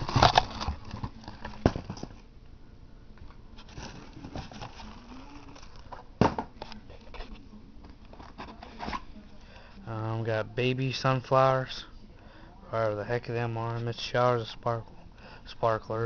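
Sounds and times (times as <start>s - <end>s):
packaging rustling and clicks: 0.0s - 2.2s.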